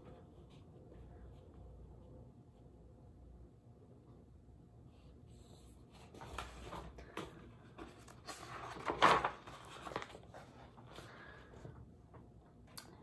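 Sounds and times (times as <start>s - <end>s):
book pages turning: 5.9s - 11.1s.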